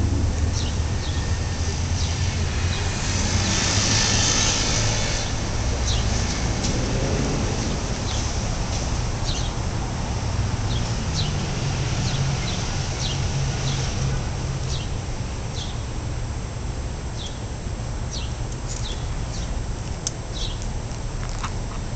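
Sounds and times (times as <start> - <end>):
low traffic rumble: 0.0 - 21.9
small birds chirping: 0.5 - 1.3, 12.0 - 13.9, 14.7 - 15.9, 18.1 - 19.6, 20.3 - 20.7.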